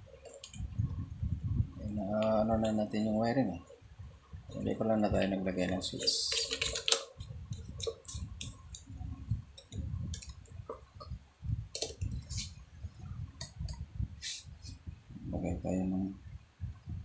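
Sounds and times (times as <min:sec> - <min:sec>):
clicks of parts and wires handled: 0:00.2 - 0:00.7, 0:06.0 - 0:08.9, 0:09.5 - 0:12.5.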